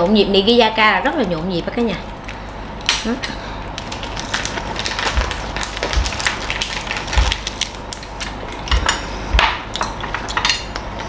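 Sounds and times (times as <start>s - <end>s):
crunching and chewing crispy food: 2.1s - 9.1s.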